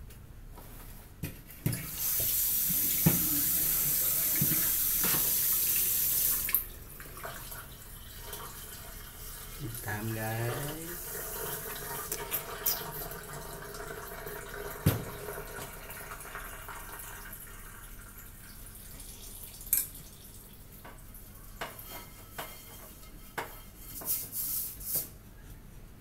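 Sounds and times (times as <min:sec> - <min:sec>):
water trickling: 0:02.8 - 0:21.4.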